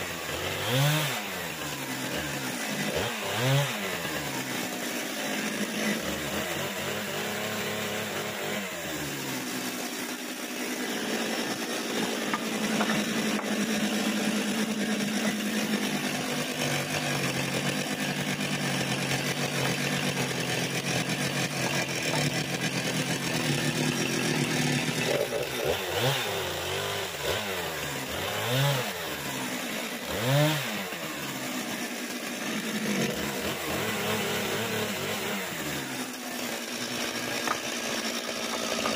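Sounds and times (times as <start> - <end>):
chainsaw cutting boards: 0.0 - 38.9.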